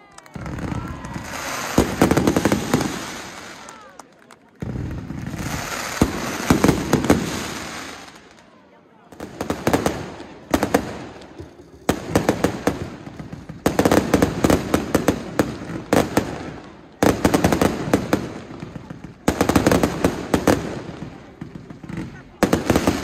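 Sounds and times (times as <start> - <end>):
fireworks bangs and crackling: 0.0 - 23.0.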